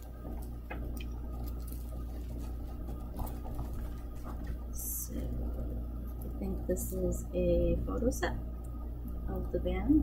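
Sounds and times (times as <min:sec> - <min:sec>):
plastic wrapping rustling: 0:00.0 - 0:06.6
low steady hum: 0:00.0 - 0:10.0.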